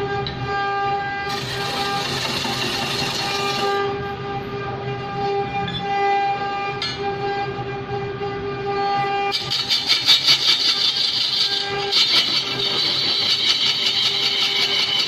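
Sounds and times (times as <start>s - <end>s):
wood lathe whine: 1.3s - 3.8s, 9.3s - 15.0s.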